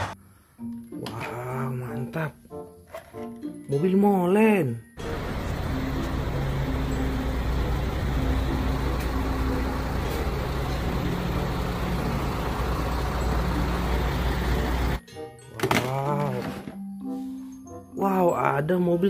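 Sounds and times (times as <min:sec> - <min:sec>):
truck diesel engine running: 0:05.0 - 0:15.0.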